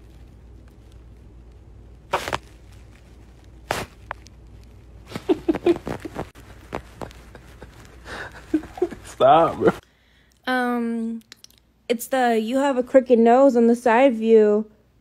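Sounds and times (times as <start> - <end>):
stifled laughter: 5.1 - 9.8.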